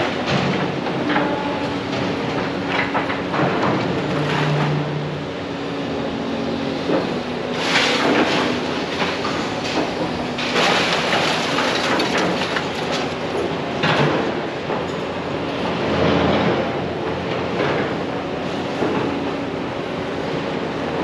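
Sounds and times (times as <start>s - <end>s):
metal clanking and rattling: 7.6s - 13.2s.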